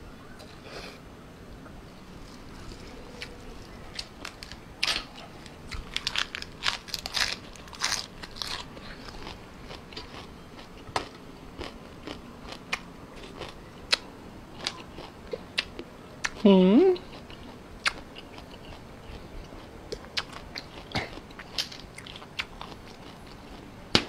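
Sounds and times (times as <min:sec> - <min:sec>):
person chewing with wet smacks: 0:08.3 - 0:24.0.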